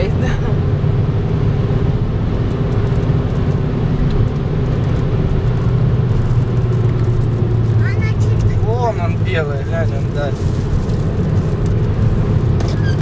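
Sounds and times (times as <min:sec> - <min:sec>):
car road and engine drone: 0:00.0 - 0:13.0.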